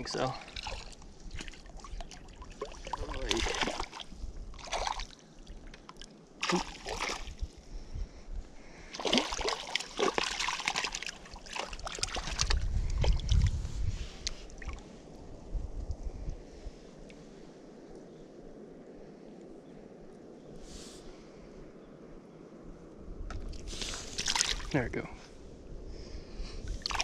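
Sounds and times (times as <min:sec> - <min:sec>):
wind buffeting microphone: 0:00.0 - 0:05.7, 0:06.8 - 0:27.0
fish splashing in water: 0:00.5 - 0:05.2, 0:06.4 - 0:07.3, 0:08.9 - 0:13.4, 0:24.1 - 0:24.7, 0:26.8 - 0:27.0.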